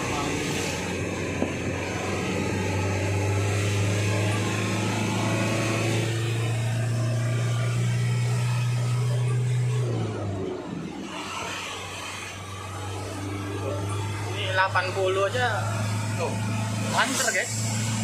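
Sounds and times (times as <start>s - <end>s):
road noise: 0.0s - 18.0s
truck engine droning: 0.0s - 18.0s.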